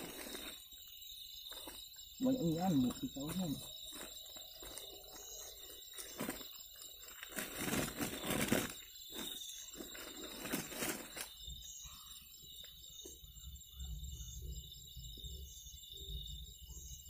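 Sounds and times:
sack rustling: 0.0s - 0.7s, 2.7s - 11.3s
high insect trill: 0.0s - 17.0s.

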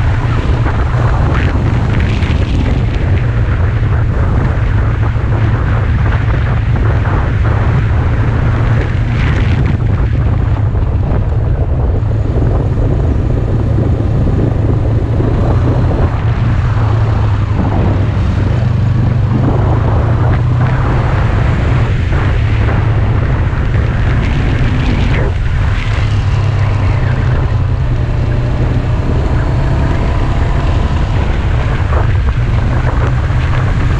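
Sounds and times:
motorcycle engine running: 0.0s - 33.9s
wind buffeting microphone: 0.0s - 33.9s.

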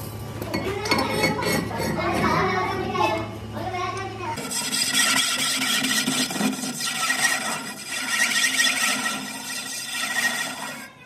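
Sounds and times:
lathe cutting tool squealing: 4.4s - 11.0s.

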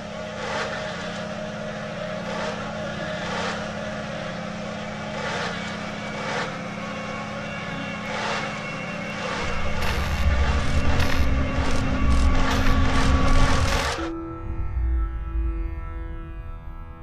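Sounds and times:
low droning hum: 0.0s - 17.0s
deep low rumble: 9.4s - 15.9s.

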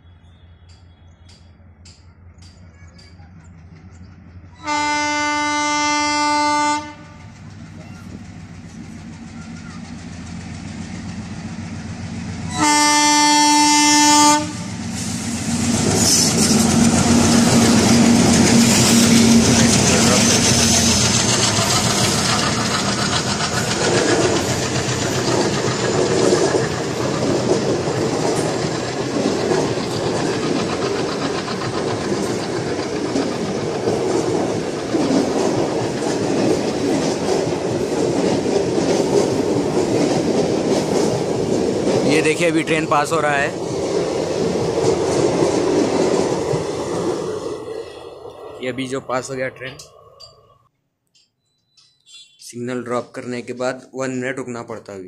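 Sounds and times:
diesel locomotive engines running: 0.0s - 50.4s
train wheel clatter: 0.6s - 5.4s, 6.2s - 47.7s
train horn blast: 4.6s - 7.3s, 12.5s - 14.8s.

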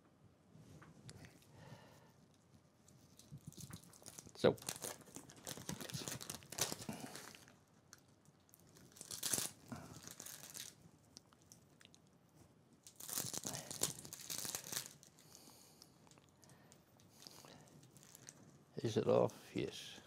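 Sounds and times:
plastic crinkling: 2.8s - 12.1s, 12.8s - 18.6s.

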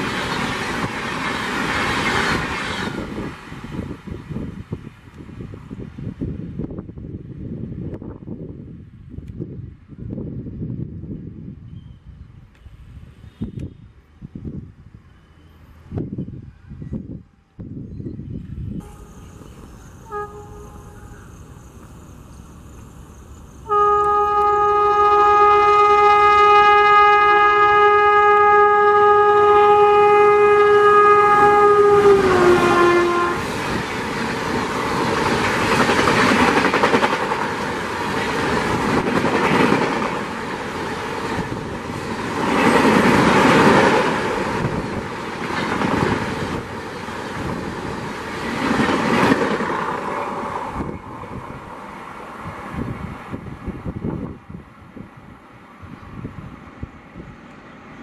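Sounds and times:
train coaches rumbling past: 0.0s - 58.0s
locomotive horn: 18.8s - 21.4s, 23.6s - 33.6s.

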